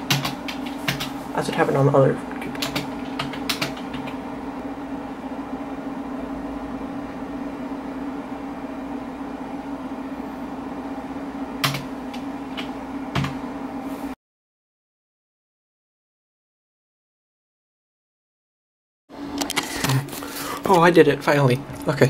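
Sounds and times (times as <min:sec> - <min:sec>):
computer fans humming: 0:00.0 - 0:14.2, 0:19.1 - 0:22.0.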